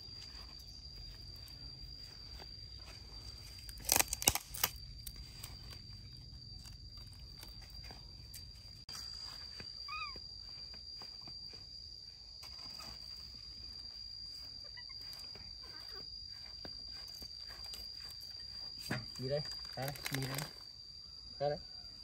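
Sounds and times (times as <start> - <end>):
steady high-pitched whine: 0.0 - 22.0
animal squeak: 9.9 - 10.2.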